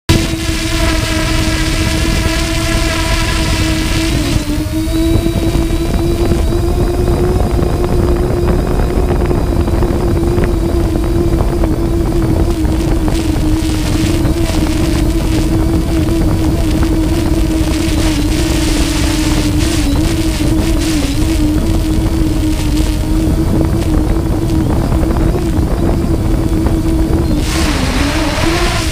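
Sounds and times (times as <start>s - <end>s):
propeller aircraft engine hum: 0.1s - 28.9s
wind on microphone: 0.1s - 28.9s.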